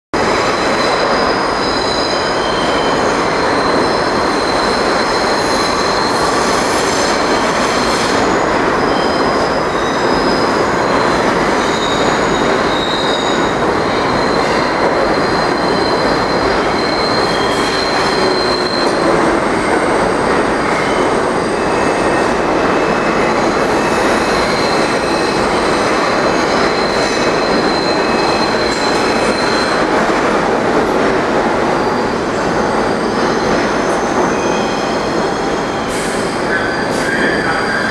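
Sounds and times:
train wheels rumbling on rail: 0:00.2 - 0:37.9
high-pitched wheel squeals: 0:00.5 - 0:29.9.

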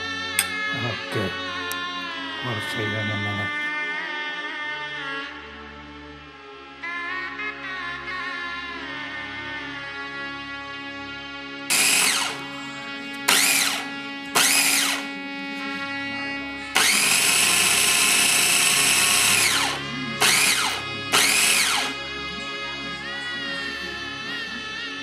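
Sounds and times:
food processor motor whine: 0:11.7 - 0:12.5, 0:13.1 - 0:15.2, 0:16.7 - 0:22.1.

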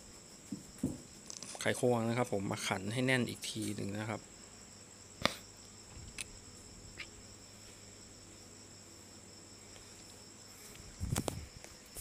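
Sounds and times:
crickets chirring: 0:00.0 - 0:12.0
dull knocks: 0:00.5 - 0:01.1.

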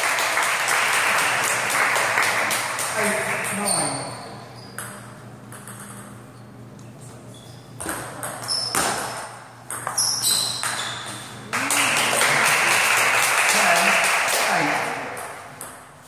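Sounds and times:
spectators applauding: 0:00.0 - 0:03.5, 0:11.5 - 0:15.2
table tennis ball hits: 0:07.8 - 0:10.8.

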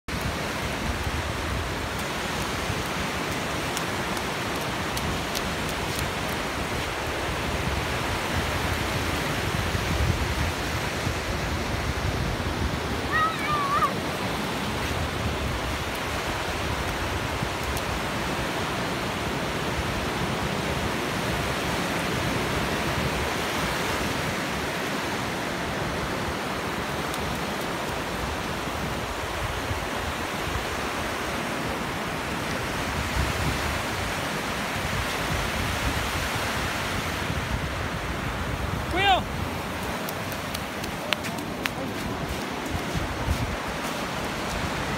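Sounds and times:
ocean waves breaking on beach: 0:00.1 - 0:44.9.

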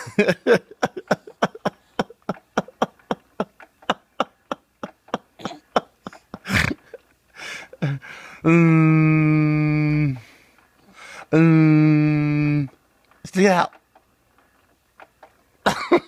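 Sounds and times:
breathy burst: 0:07.4 - 0:08.6, 0:10.1 - 0:11.3.

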